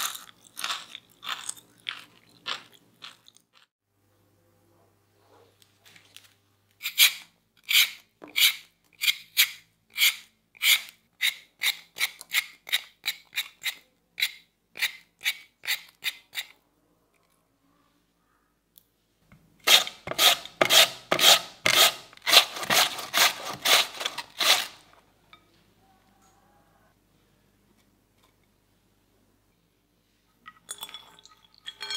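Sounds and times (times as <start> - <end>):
peeler scraping potato: 6.8 - 16.6, 19.6 - 25.0.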